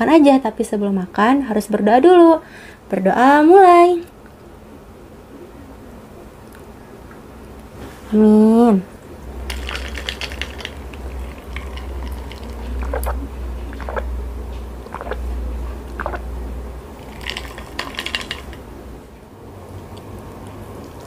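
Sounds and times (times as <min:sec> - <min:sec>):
gulping water: 0:09.5 - 0:14.2, 0:14.8 - 0:16.3.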